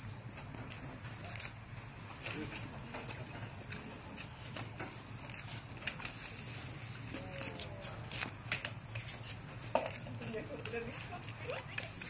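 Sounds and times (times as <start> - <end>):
kiln crackling and ticking: 0.0 - 12.0
soft rushing hiss: 5.3 - 12.0.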